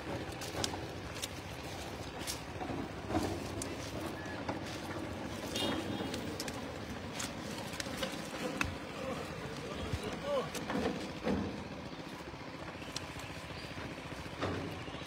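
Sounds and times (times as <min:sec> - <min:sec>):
wet plants rustling: 0:00.0 - 0:11.2.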